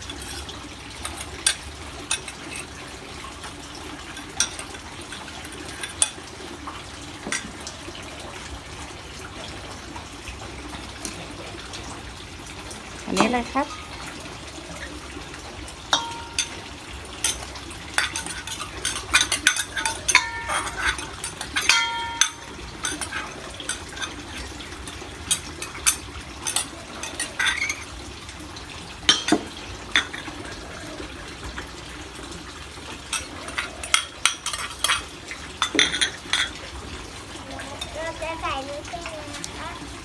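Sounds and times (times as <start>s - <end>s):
metal ladle clinking on bowls: 15.9s - 16.6s, 17.2s - 28.0s, 29.1s - 30.3s, 33.1s - 36.6s.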